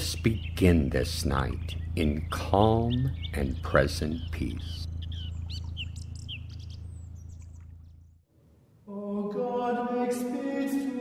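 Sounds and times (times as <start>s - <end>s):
birds chirping: 0.0s - 8.3s
low steady hum: 0.0s - 11.0s.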